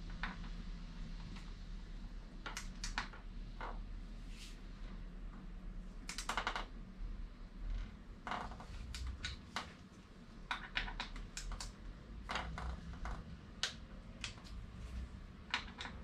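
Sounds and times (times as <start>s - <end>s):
ratcheting clicks: 10.5s - 14.6s.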